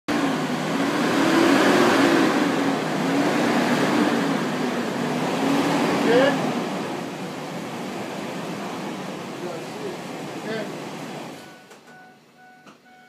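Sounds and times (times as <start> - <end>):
car engine running: 0.1 - 11.6.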